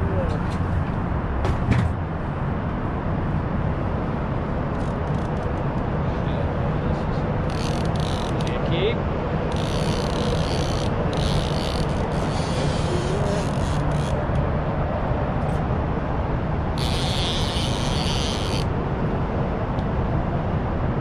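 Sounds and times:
city traffic: 0:00.0 - 0:21.0
outboard motor rumble: 0:04.9 - 0:19.0
fishing reel drag buzzing: 0:07.5 - 0:08.5, 0:09.5 - 0:14.2, 0:16.8 - 0:18.7.

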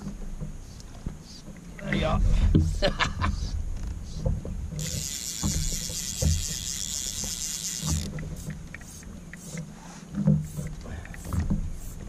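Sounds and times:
fishing reel whirring: 0:04.8 - 0:09.6.

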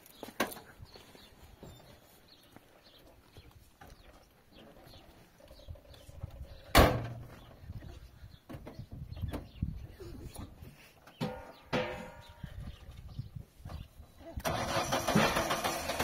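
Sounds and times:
loud thump: 0:06.7 - 0:07.3.

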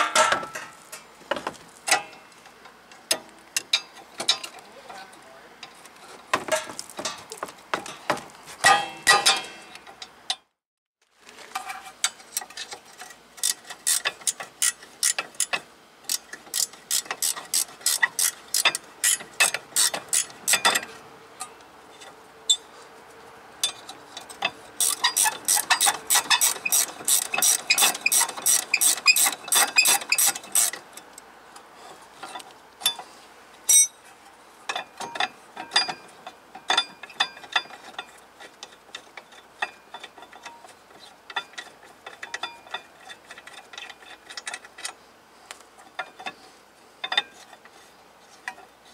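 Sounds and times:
ratchet wrench clicking: 0:13.4 - 0:15.5, 0:16.1 - 0:20.7, 0:24.8 - 0:30.8.

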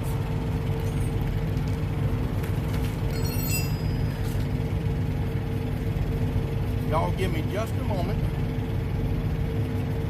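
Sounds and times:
truck diesel engine idling: 0:00.0 - 0:10.0
tire chain clinking: 0:00.7 - 0:05.1.

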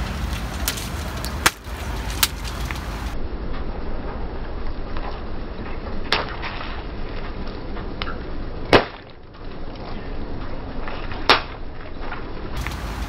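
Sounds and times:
sharp crack: 0:00.0 - 0:03.7, 0:04.9 - 0:10.0, 0:10.8 - 0:13.0
toys crackling under tyre: 0:00.0 - 0:13.0
toy bursting with loud pop: 0:08.7 - 0:09.1.

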